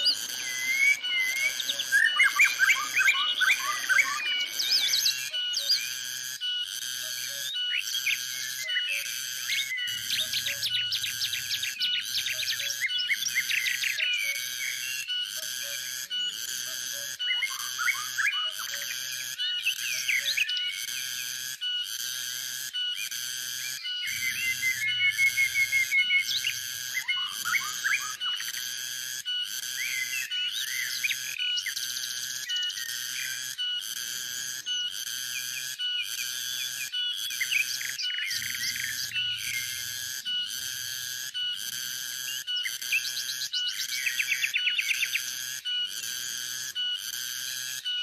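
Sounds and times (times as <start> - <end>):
songbirds chirping: 0.0 - 16.4, 17.0 - 21.4, 23.6 - 28.6, 34.7 - 40.7
bird fast trill: 0.0 - 21.9, 22.7 - 48.0
cicada pulsing drone: 0.0 - 48.0.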